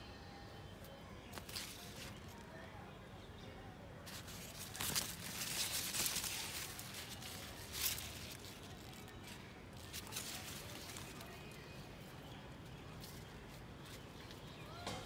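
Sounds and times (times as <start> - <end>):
plant leaves rustling: 1.3 - 2.5, 4.0 - 14.8.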